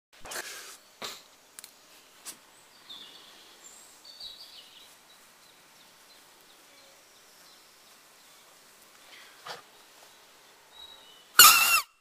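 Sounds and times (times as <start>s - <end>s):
bird chirps: 9.1s - 12.0s.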